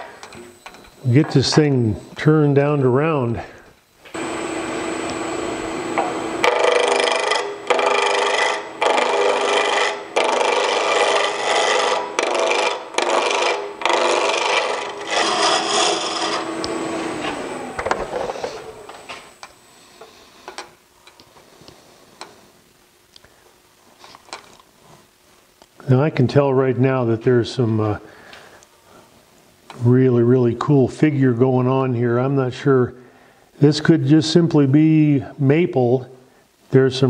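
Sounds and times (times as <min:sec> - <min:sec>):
lathe motor hum: 0:04.2 - 0:19.3
gouge scraping wood on lathe: 0:06.0 - 0:17.3.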